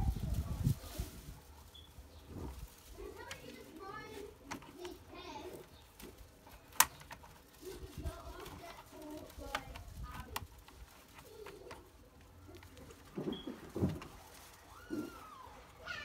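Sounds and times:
sharp plastic clicks: 5.9 - 7.7, 8.3 - 13.1.

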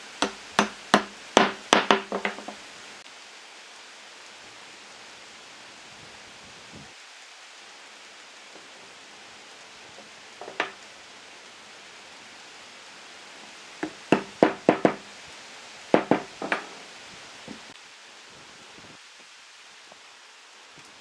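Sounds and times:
steady hiss: 0.0 - 21.0
sharp wooden knocks: 0.2 - 2.6, 10.0 - 10.8, 13.8 - 15.1, 15.9 - 16.8.

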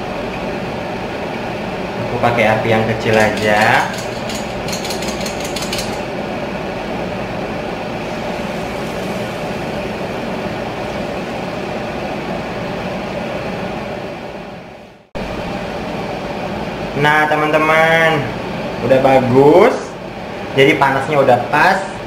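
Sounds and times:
hot oil sizzling: 8.0 - 11.7.

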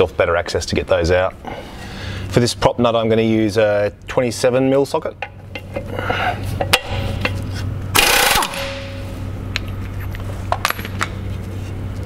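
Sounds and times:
steady low hum: 0.0 - 12.0
impact wrench hammering: 6.6 - 7.4, 8.0 - 9.2.

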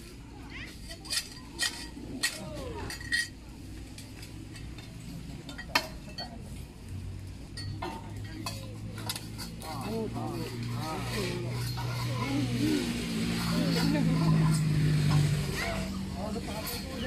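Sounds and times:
metal blades scraping concrete: 7.8 - 17.0.

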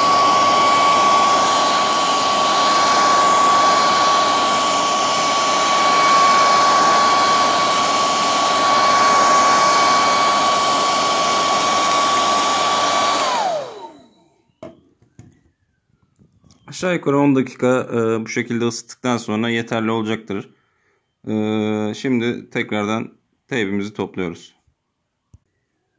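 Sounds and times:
hair dryer motor whine: 0.0 - 14.8.

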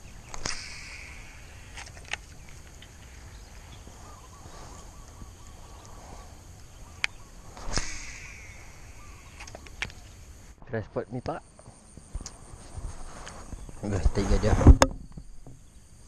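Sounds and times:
fishing reel cast snap: 0.2 - 3.2, 6.6 - 10.0
sharp reel clicks: 0.3 - 3.2, 7.0 - 10.0.

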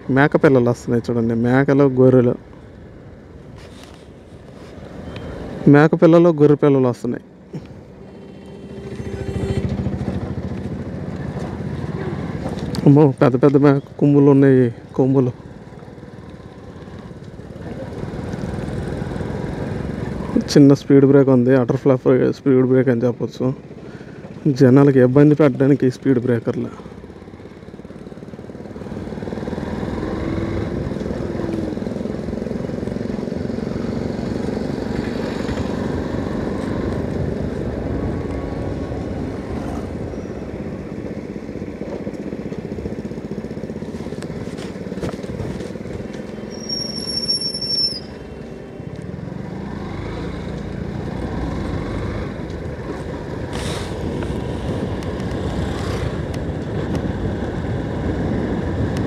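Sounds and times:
wind and road noise: 0.0 - 59.0
motorcycle engine running: 7.4 - 12.9, 26.7 - 47.2
short high-pitched tone: 7.9 - 10.3.

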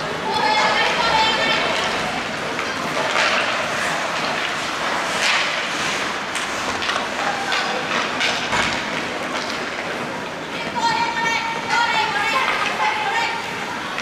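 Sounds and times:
skate blades scraping on ice: 0.4 - 10.9.

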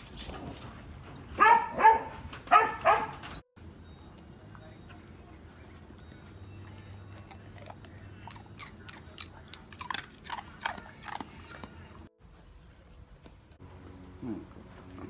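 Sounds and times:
dog licking and nibbling paws: 6.7 - 12.1.

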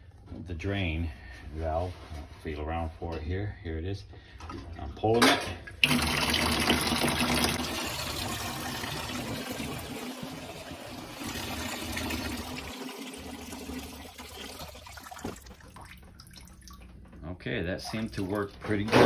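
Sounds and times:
water draining from sink: 4.4 - 19.0.

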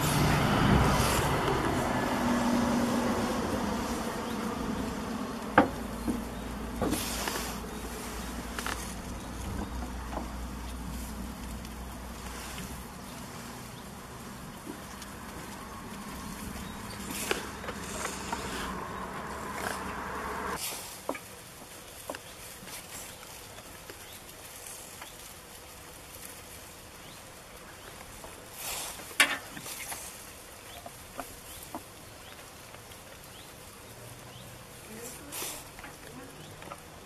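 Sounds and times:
goats chewing hay: 0.0 - 37.0
hay rustling: 0.0 - 37.0
steady low hum: 13.9 - 20.6.

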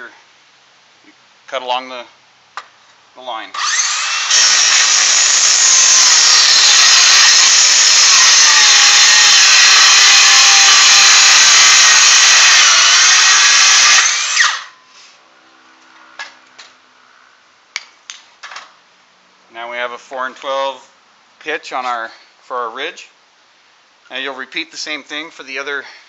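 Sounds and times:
circular saw cutting wood: 3.5 - 14.8.

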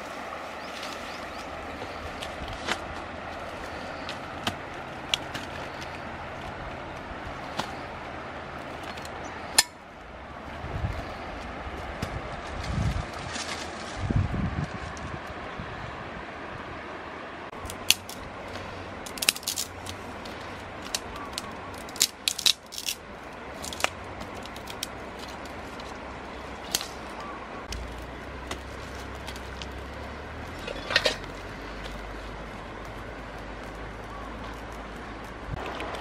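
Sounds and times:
sticks and pebbles clicking: 0.0 - 9.8, 17.5 - 36.0
steady background hiss: 0.0 - 12.5.

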